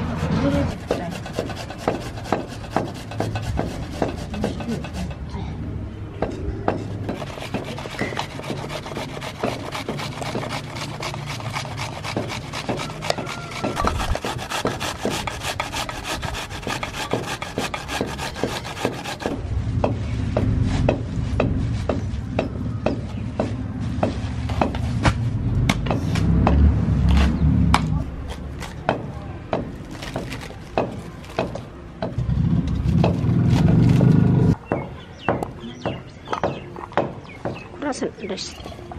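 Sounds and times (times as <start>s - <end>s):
onion grating on metal grater: 0.0s - 5.2s, 6.9s - 19.4s
knife crunching through cabbage: 28.2s - 28.8s, 29.8s - 31.5s.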